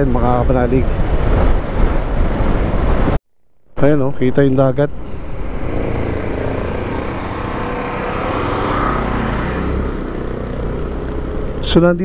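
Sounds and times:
wind and road noise: 0:00.0 - 0:03.2, 0:03.8 - 0:12.0
motorcycle engine running: 0:05.0 - 0:11.8.

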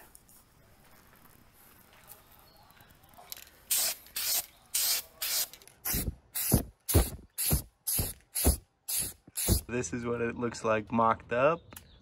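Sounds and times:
aerosol spray can bursts: 0:03.7 - 0:09.7.

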